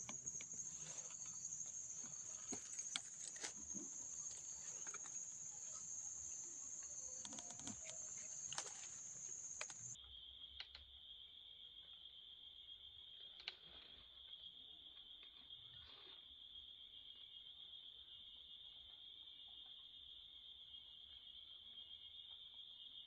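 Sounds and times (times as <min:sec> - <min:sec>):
faint clicks and rustles: 0:00.0 - 0:10.0
insect drone: 0:00.0 - 0:23.0.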